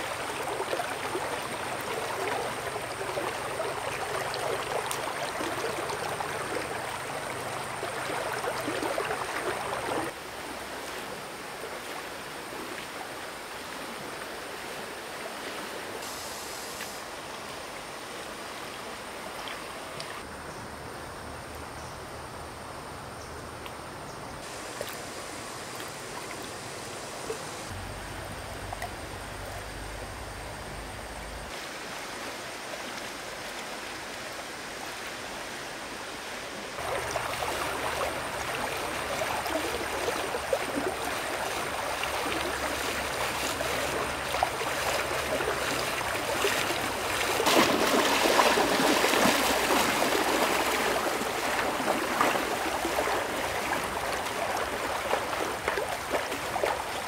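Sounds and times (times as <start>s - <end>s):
stream water running: 0.0s - 57.0s.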